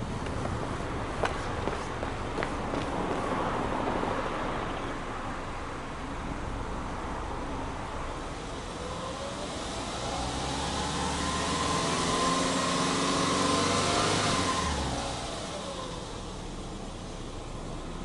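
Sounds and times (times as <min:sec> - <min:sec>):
car engine revving: 0:08.4 - 0:16.6.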